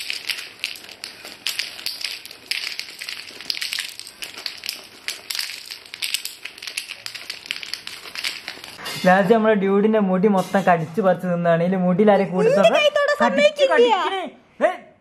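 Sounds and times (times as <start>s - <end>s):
domino blocks clicking: 0.0s - 8.8s
plastic bag crinkling: 0.0s - 9.0s.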